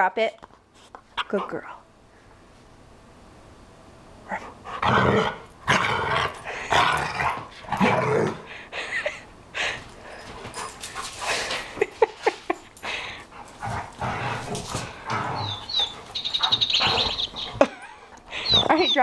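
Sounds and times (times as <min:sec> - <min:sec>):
dogs growling and snarling: 0:04.2 - 0:08.9, 0:12.8 - 0:18.6
dogs scuffling: 0:09.8 - 0:19.0.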